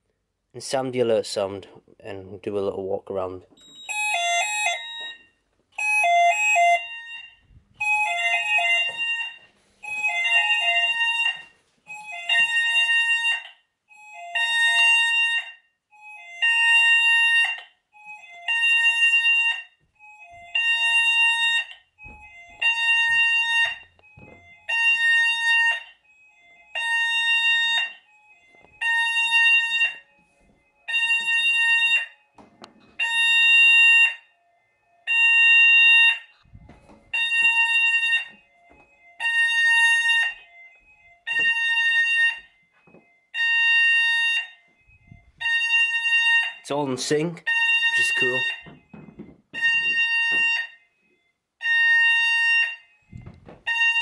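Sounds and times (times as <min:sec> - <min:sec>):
fire alarm beeping: 0:03.5 - 0:54.0.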